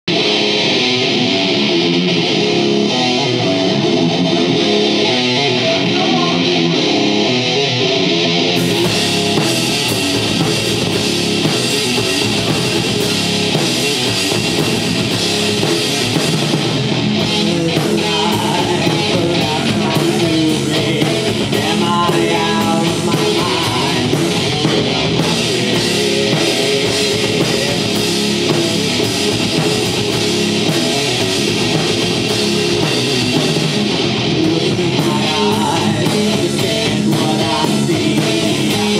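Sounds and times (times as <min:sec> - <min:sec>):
bass guitar: 0:00.0 - 0:38.9
electric guitar: 0:00.0 - 0:38.9
drum kit with cymbals: 0:08.6 - 0:38.9.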